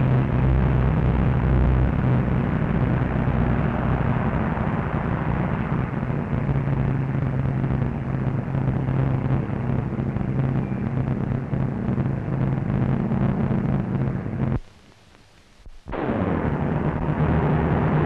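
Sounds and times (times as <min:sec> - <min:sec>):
aircraft engines humming: 0:00.0 - 0:14.6
old soundtrack hiss: 0:00.0 - 0:18.0.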